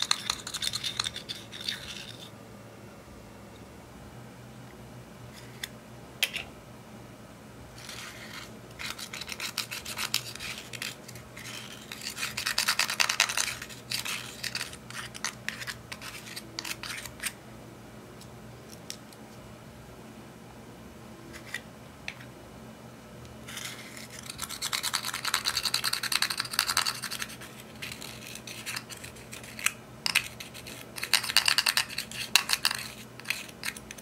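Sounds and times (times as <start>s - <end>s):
dry scratching of eyeshadow: 0.0s - 2.4s, 7.8s - 17.4s, 23.4s - 34.0s.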